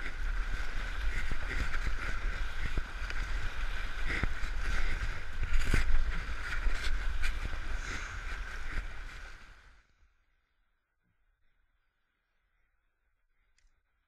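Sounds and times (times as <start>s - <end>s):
wind buffeting on microphone: 0.0s - 9.7s.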